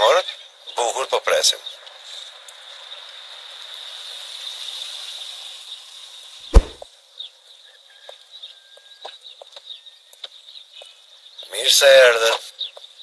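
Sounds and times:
outdoor hiss: 1.7s - 6.7s
sharp loud thump: 6.6s - 6.8s.

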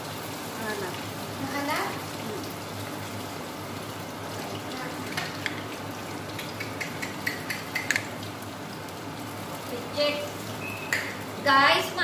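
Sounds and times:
food sizzling in a wok: 0.0s - 6.4s, 7.9s - 12.0s.

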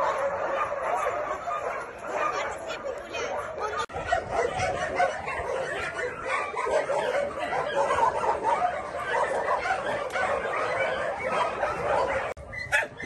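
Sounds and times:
many dogs barking: 0.0s - 13.0s.

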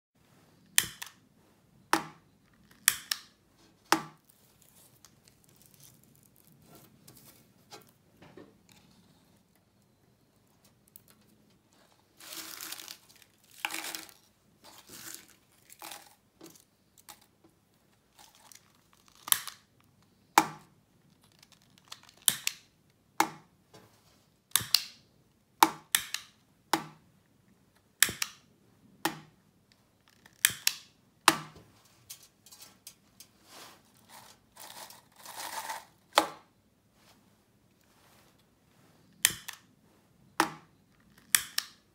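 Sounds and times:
aluminium foil balls crinkling: 4.2s - 8.0s, 10.8s - 17.3s, 17.9s - 20.0s, 31.9s - 36.1s.

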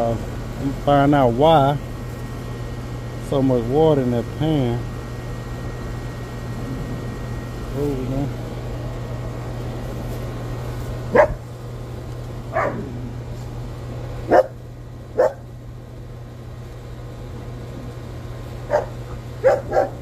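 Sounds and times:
steady low hum: 0.0s - 20.0s
dog barking: 11.1s - 11.4s, 12.5s - 12.9s, 14.3s - 14.6s, 15.2s - 15.5s, 18.7s - 20.0s.

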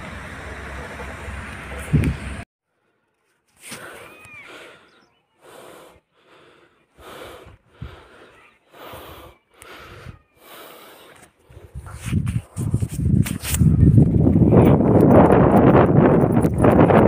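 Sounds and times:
footsteps in dry sand: 10.6s - 16.9s.

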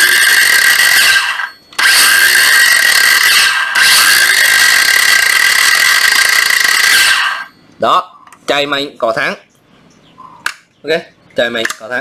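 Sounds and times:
circular saw high whine: 0.0s - 7.7s.

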